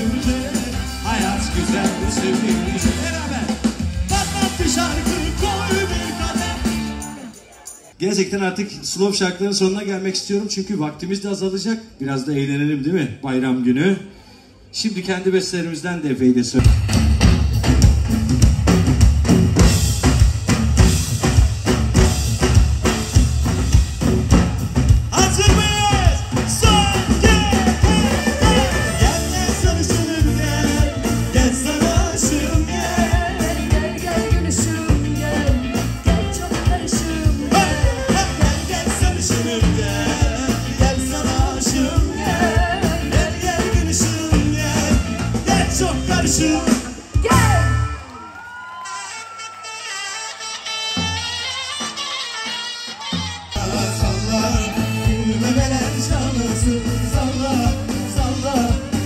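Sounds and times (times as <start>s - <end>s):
drum kit beat: 0.0s - 7.3s, 16.6s - 48.0s, 53.2s - 59.0s
person singing: 0.0s - 7.3s, 25.1s - 48.0s, 53.6s - 59.0s
live pop band playing: 0.0s - 8.0s, 16.6s - 59.0s.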